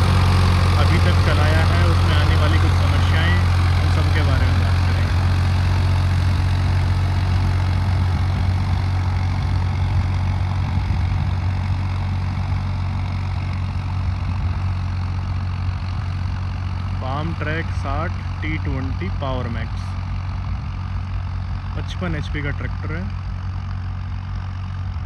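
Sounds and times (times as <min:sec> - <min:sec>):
tractor engine under load: 0:00.0 - 0:25.0.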